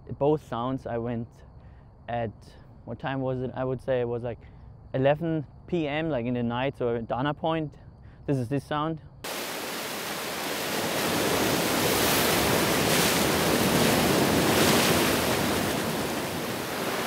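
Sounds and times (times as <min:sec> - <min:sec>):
ocean waves washing against rocks: 0:09.3 - 0:17.0.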